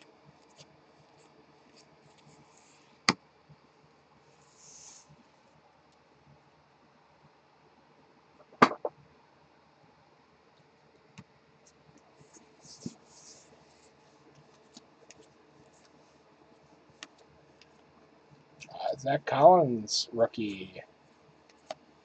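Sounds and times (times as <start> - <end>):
cards sliding and rustling: 12.4 - 16.0.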